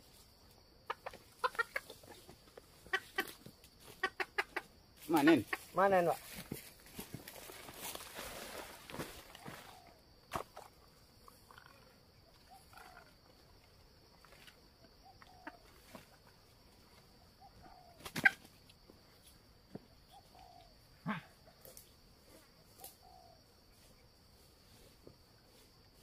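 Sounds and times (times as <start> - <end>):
high insect drone: 0.0 - 26.0
junglefowl clucking: 0.8 - 6.1, 11.4 - 13.3, 14.4 - 16.4, 17.2 - 18.6, 20.1 - 21.2.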